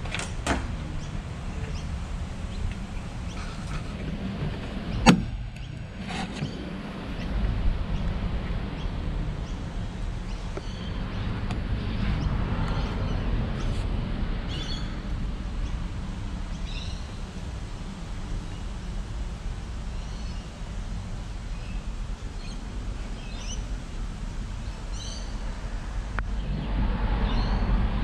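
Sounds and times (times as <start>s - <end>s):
steady low rumble: 0.0s - 28.0s
small birds chirping: 0.9s - 4.1s, 4.8s - 13.8s, 14.5s - 15.0s, 15.6s - 17.3s, 19.9s - 20.7s, 21.4s - 23.8s, 24.5s - 25.5s.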